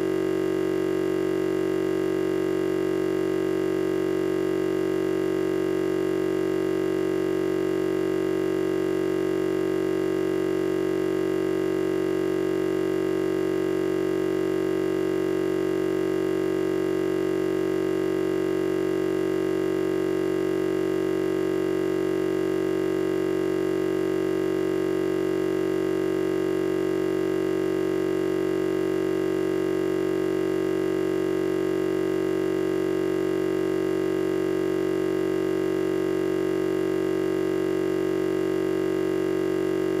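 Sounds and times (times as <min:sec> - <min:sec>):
low electronic hum: 0:39.3 - 0:40.0.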